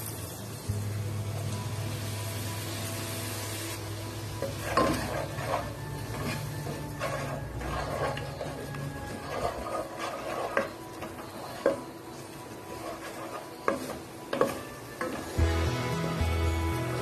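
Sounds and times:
water sizzling in hot oil: 0:00.0 - 0:17.0
spatula scraping a pot: 0:04.4 - 0:15.4.

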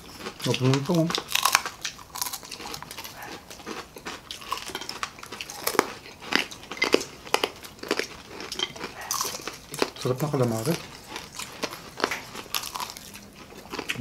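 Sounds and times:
people chewing crispy food: 0:00.0 - 0:14.0.

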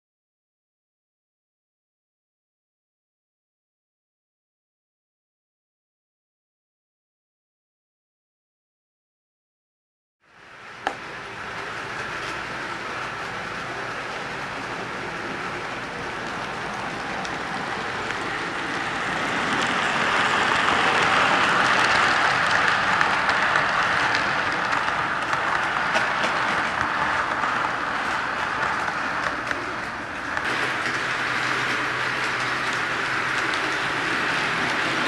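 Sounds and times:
model train wheels rumbling on rail: 0:10.3 - 0:35.0.

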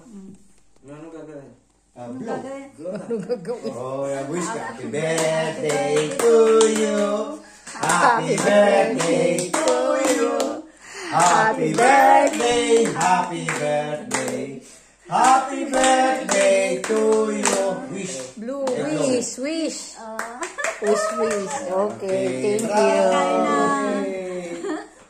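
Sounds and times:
people singing a celebration song: 0:03.7 - 0:19.3, 0:20.8 - 0:25.0
people clapping in time: 0:07.7 - 0:10.6, 0:11.2 - 0:14.4, 0:15.2 - 0:18.9.

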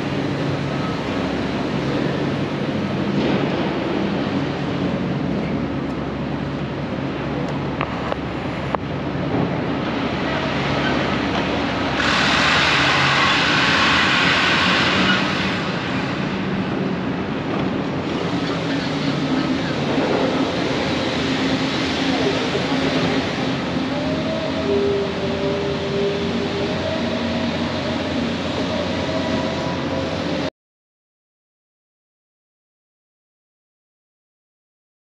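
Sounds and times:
traffic and engine rumble: 0:00.0 - 0:30.5
rushing hiss: 0:11.6 - 0:16.5.

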